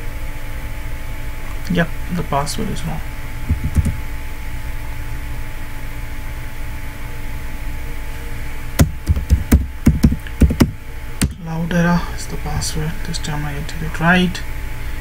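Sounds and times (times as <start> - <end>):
low hum with faint hiss: 0.0 - 15.0
keyboard key clicks: 3.5 - 4.0.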